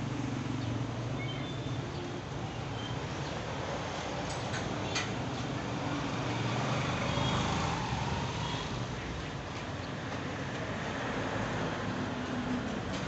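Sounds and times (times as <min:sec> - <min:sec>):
road traffic rumble: 0:00.0 - 0:13.0
vehicle passing: 0:05.7 - 0:08.9.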